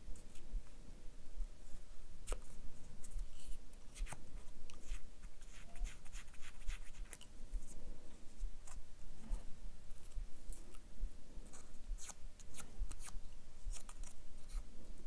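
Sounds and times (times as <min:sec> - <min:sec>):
paper strip scratching on needle: 0:04.8 - 0:07.2.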